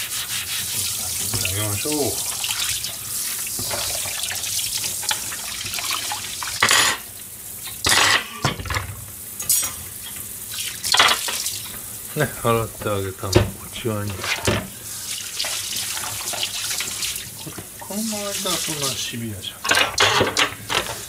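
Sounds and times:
water splashing: 0.0s - 6.7s, 10.4s - 19.2s.

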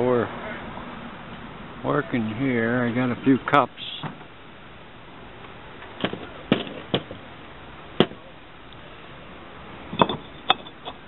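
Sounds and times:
ceramic cups knocking and clinking: 10.0s - 11.0s.

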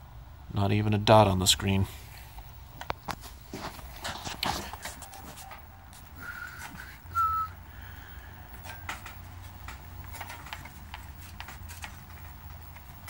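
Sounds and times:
person whistling: 6.2s - 7.6s.

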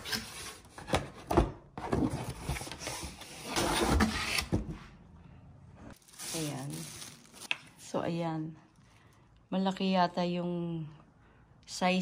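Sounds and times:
cardboard scraping and rustling: 0.0s - 4.8s.

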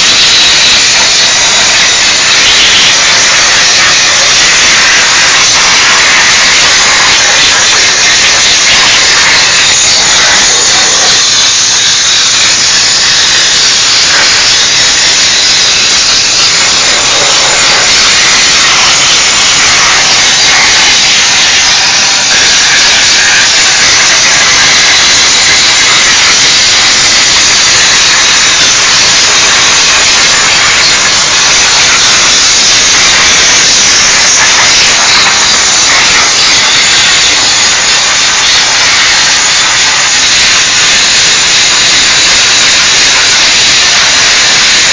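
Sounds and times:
steam cleaner hissing: 0.0s - 44.9s.

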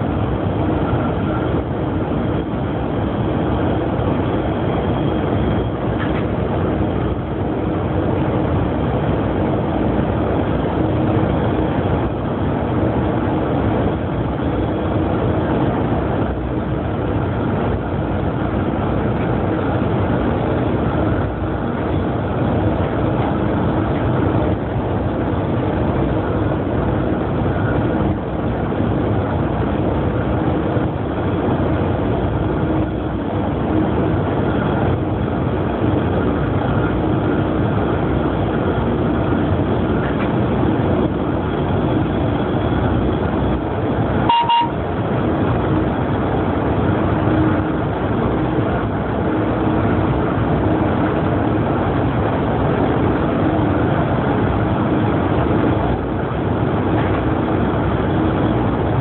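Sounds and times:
train running at high speed: 0.0s - 59.0s
beep-like tone: 44.3s - 44.8s.

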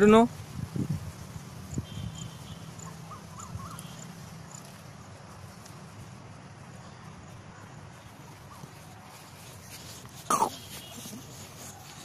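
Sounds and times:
bird chirps: 1.8s - 4.7s.

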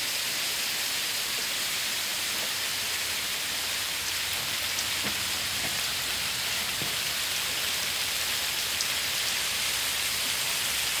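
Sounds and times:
hail hissing on leaves and ground: 0.0s - 11.0s
sharp hailstone ticks: 4.0s - 6.0s.

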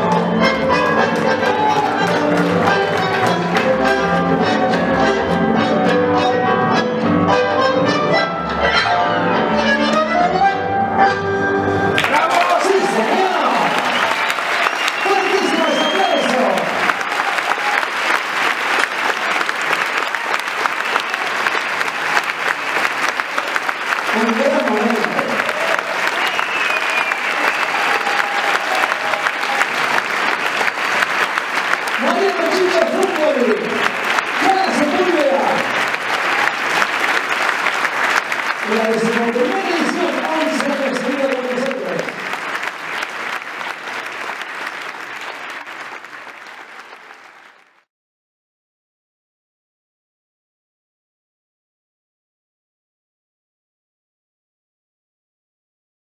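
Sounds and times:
audience applauding: 0.0s - 5.2s, 11.9s - 47.9s.

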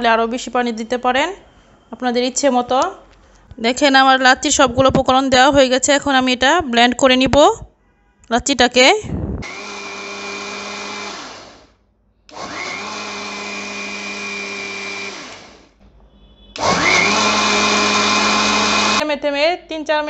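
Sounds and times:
electric blender whining: 9.4s - 15.8s, 16.6s - 19.0s.

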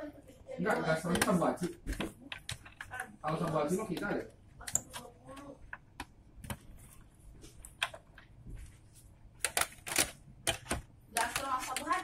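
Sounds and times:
plastic and metal parts clicking: 1.1s - 5.1s, 9.4s - 12.0s.

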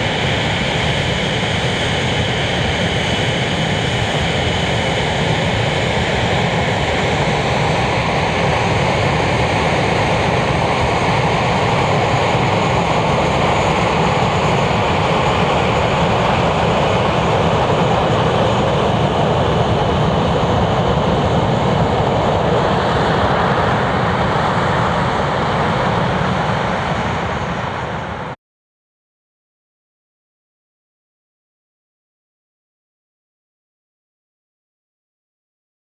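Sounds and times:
high turbine whine: 0.0s - 28.4s
jet engines running: 0.0s - 28.4s.

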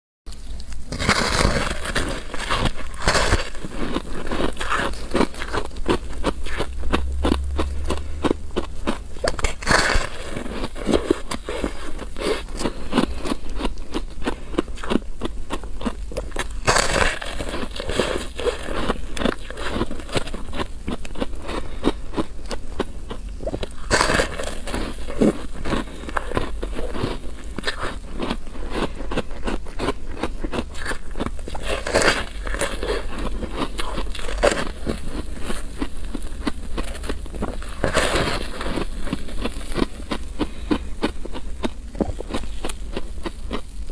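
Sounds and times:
ice being chewed: 0.3s - 43.9s.

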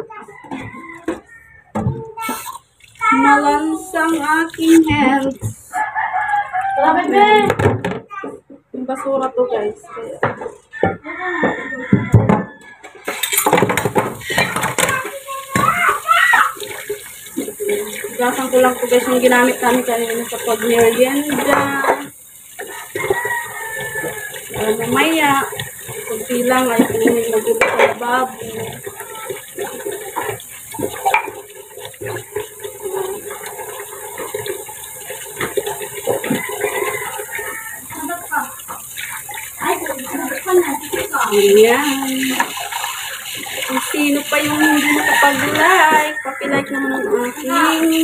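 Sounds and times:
tap water running: 0.0s - 8.0s, 9.6s - 48.0s
dishes and cutlery clattering: 11.5s - 15.0s, 22.7s - 34.8s
dishes clinking: 11.5s - 15.0s.

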